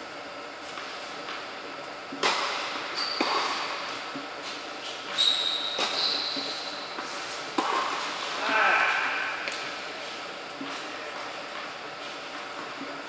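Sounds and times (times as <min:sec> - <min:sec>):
balls bouncing on hard court: 0:02.1 - 0:04.3, 0:05.1 - 0:09.8
tennis balls hit by rackets: 0:02.1 - 0:05.1, 0:05.7 - 0:09.8
sneakers squeaking on court: 0:02.2 - 0:08.2.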